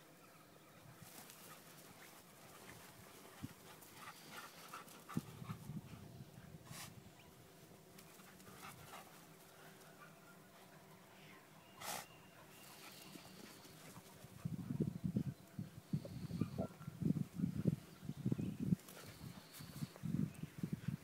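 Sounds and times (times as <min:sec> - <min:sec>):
dog panting: 0:01.5 - 0:06.0.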